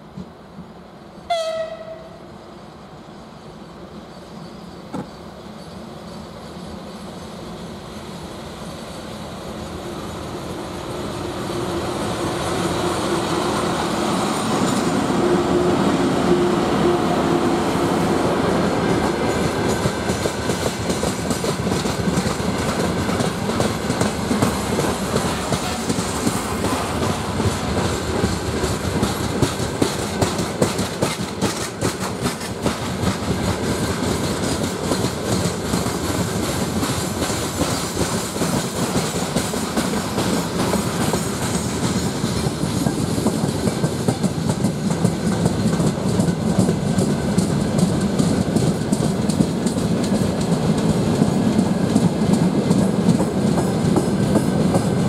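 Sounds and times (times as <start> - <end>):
clickety-clack over rail joints: 0.0 - 0.8, 4.9 - 5.8, 11.3 - 15.3, 18.4 - 55.0
train wheels rumbling on rails: 0.0 - 55.0.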